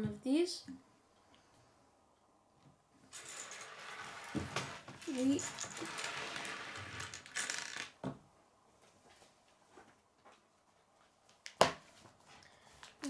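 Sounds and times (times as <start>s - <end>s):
plastic pieces rattling: 3.1s - 8.0s.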